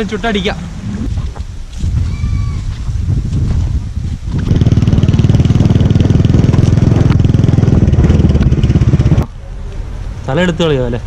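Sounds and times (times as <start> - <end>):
motorcycle engine running: 4.1 - 9.3.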